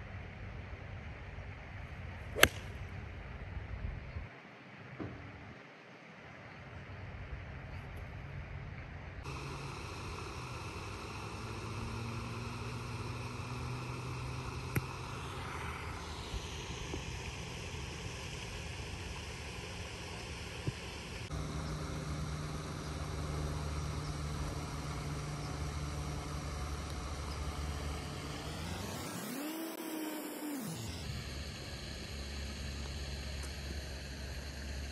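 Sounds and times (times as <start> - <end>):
golf club striking ball: 2.4 - 2.7
low engine-like drone: 6.2 - 34.9.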